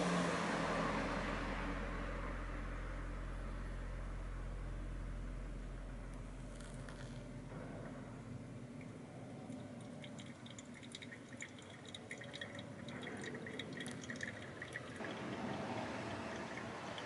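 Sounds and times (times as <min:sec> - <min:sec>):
water pouring from a kettle: 0:09.5 - 0:17.0.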